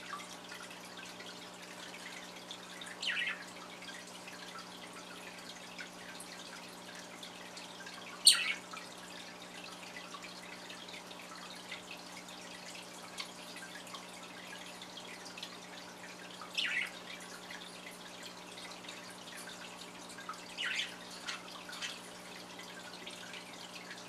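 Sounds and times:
budgerigars chirping: 3.0s - 3.4s, 8.3s - 8.6s, 16.6s - 17.0s, 20.6s - 22.0s.

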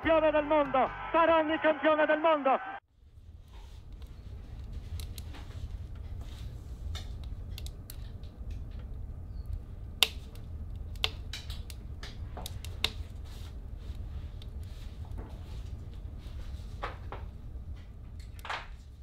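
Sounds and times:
sharp clicks and ticks: 6.9s - 13.0s.

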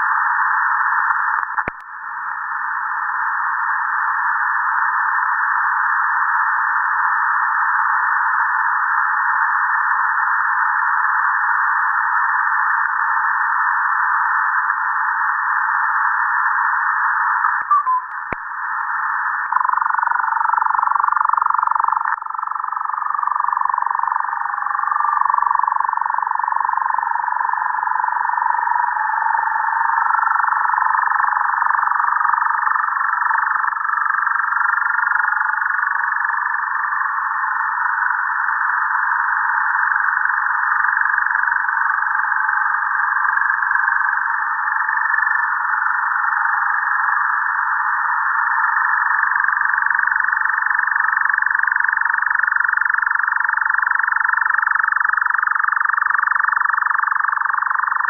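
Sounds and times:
radio static hiss: 0.0s - 58.0s
wavering whistling tones: 17.6s - 18.2s.

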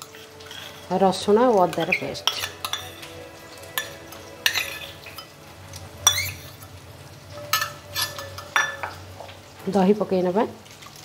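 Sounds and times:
spoon scraping metal bowl: 0.0s - 6.7s, 7.4s - 9.0s.

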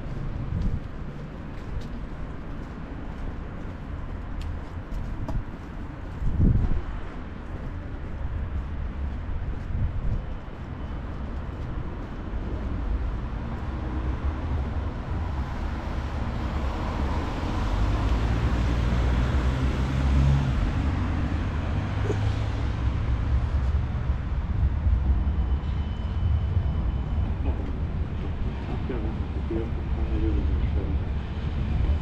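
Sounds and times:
traffic drone: 0.0s - 32.0s
vehicle engine rumbling: 0.0s - 32.0s.

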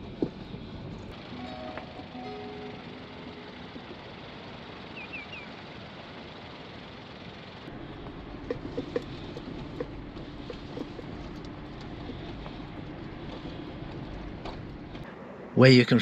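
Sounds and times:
tyre and wind noise: 0.0s - 1.2s, 7.7s - 15.1s
car engine hum: 0.0s - 16.0s
knocks and rattles in car cabin: 7.7s - 15.1s.

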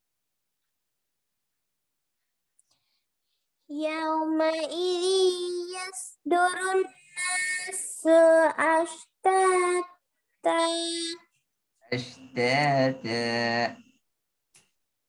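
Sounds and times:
person chanting melodic verse: 11.9s - 13.8s.

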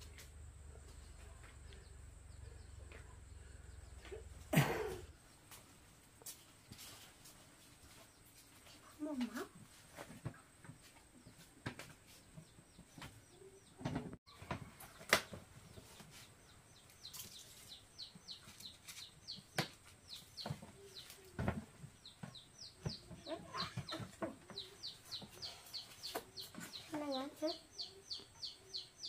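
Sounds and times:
chickens clucking and cheeping: 12.1s - 29.0s.

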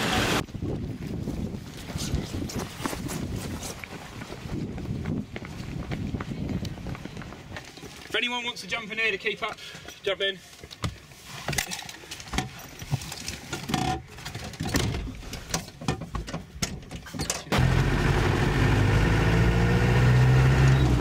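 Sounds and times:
knocks and handling noises: 10.7s - 17.5s
car engine and road noise: 15.7s - 21.0s.

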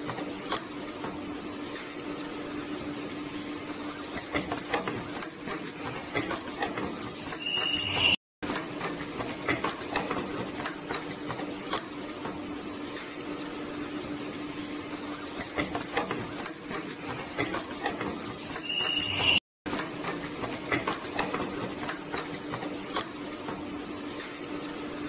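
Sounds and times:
high ultrasonic welding whine: 7.2s - 8.2s.

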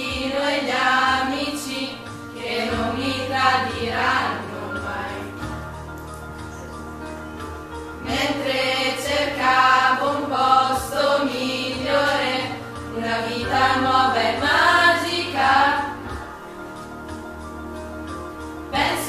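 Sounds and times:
group of voices singing: 0.0s - 5.6s, 8.0s - 16.4s, 18.7s - 19.0s.

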